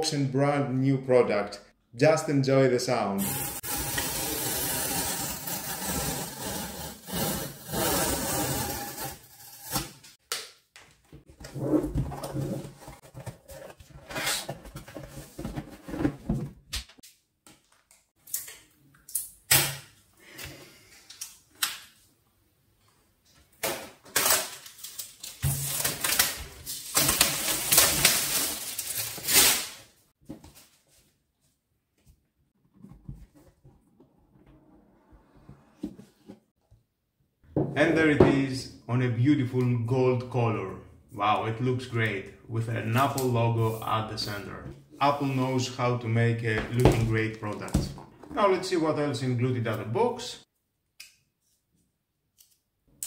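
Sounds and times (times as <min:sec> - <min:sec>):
cardboard rustling and scraping: 0:11.4 - 0:16.6
packing tape peeled and torn: 0:24.1 - 0:29.9.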